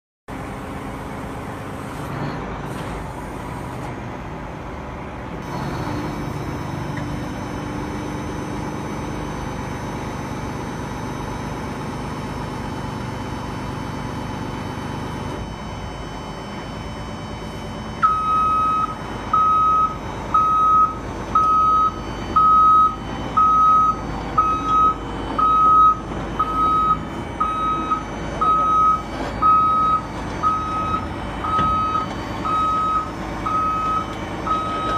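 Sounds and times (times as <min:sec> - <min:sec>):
excavator engine humming: 0:00.3 - 0:34.9
high warning beeper: 0:14.8 - 0:34.9.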